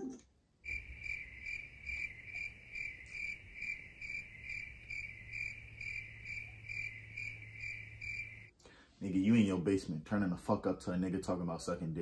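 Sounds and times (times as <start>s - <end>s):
cricket chirping: 0.6s - 8.5s.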